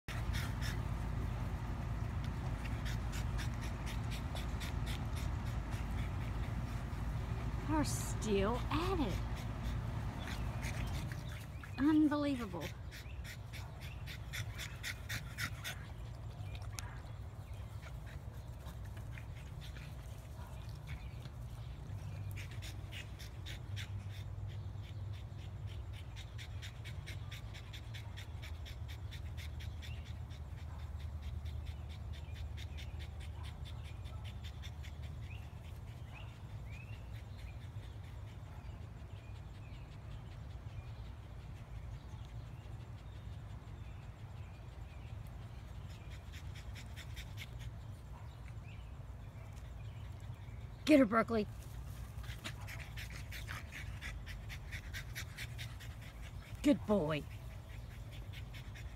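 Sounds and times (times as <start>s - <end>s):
steady low rumble: 0.0s - 11.8s
dogs panting and snorting: 0.0s - 58.9s.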